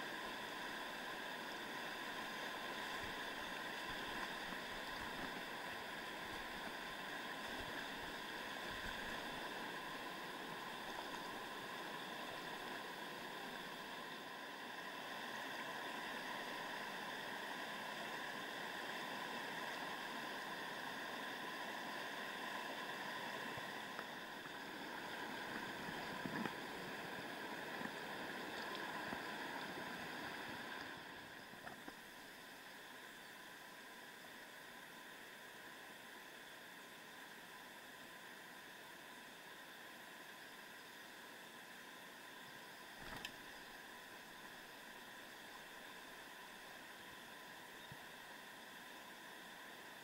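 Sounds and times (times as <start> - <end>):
stream rushing over rocks: 0.0 - 32.5.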